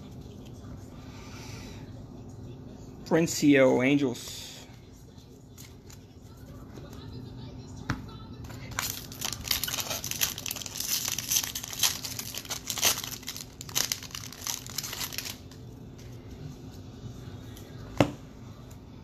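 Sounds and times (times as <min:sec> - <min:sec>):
foil wrapper tearing and crinkling: 0:08.7 - 0:15.6.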